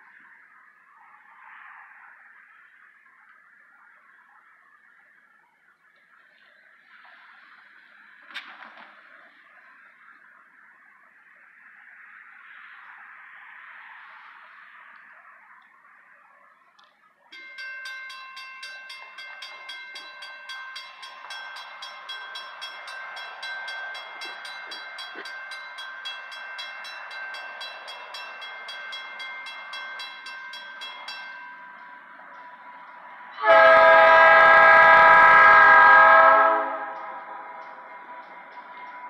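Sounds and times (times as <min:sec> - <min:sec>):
crossing warning bell ringing: 0:17.3 - 0:39.0
locomotive horn blast: 0:33.4 - 0:37.6.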